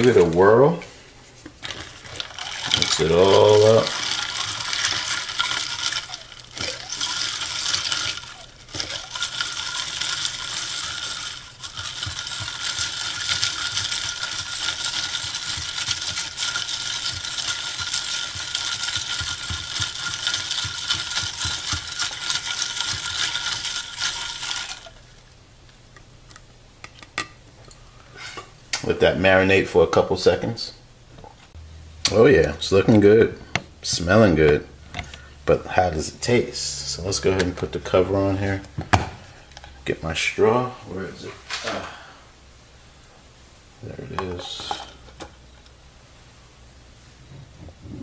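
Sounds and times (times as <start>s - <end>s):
liquid sloshing: 1.6s - 25.2s
ice clinking against glass: 2.2s - 25.0s.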